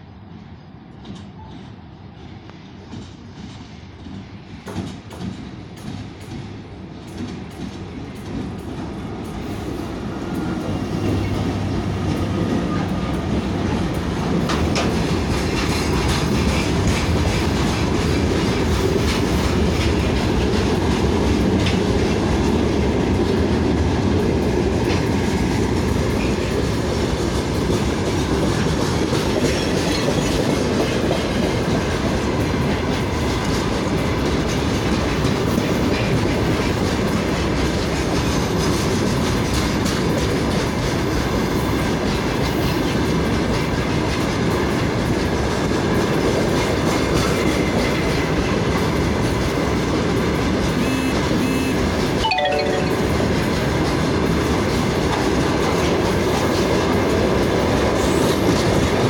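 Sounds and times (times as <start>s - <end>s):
train rumbling past: 0.0s - 59.0s
wheels clacking over rail joints: 10.3s - 23.4s.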